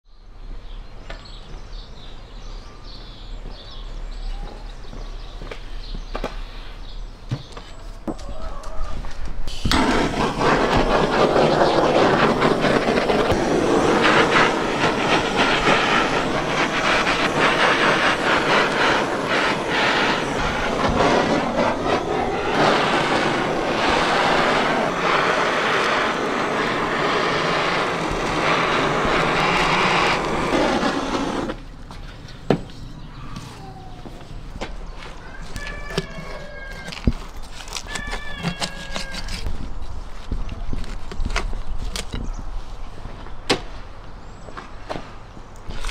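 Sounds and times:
gas torch roaring: 0:08.2 - 0:31.8.

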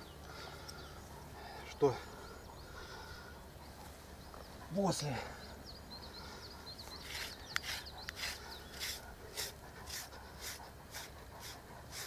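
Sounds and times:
brush scraping through dog fur: 0:07.0 - 0:12.0.

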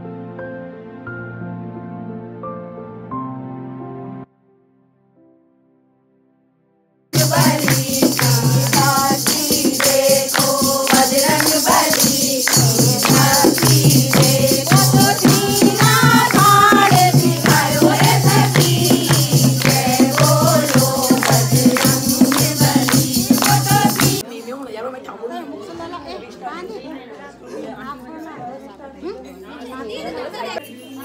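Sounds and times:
hand drum beat: 0:07.2 - 0:24.2
rhythmic hand-clapping: 0:07.2 - 0:24.2
women singing a hymn: 0:07.2 - 0:24.3.

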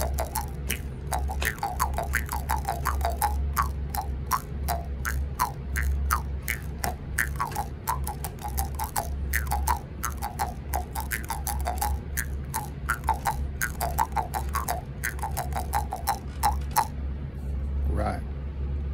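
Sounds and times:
jaw harp twanging: 0:00.0 - 0:17.0.

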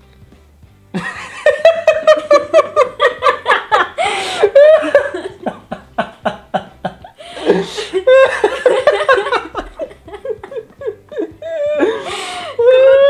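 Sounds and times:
person laughing hard: 0:01.0 - 0:13.0
gasping in-breath: 0:04.0 - 0:04.6, 0:07.2 - 0:08.0, 0:11.4 - 0:12.6.

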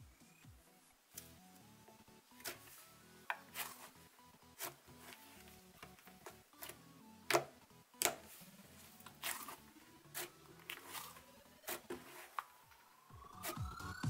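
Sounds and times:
slime crackling and squishing: 0:08.0 - 0:12.6.

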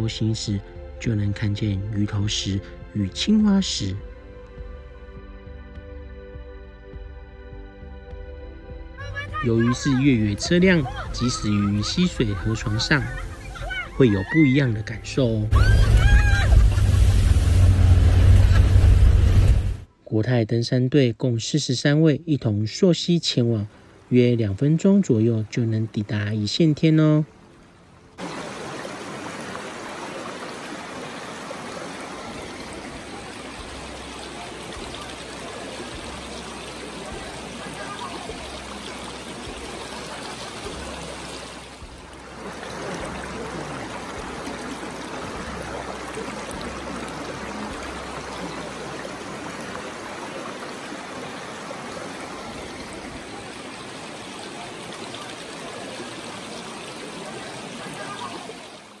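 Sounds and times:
river rushing over rocks: 0:28.2 - 0:59.0.

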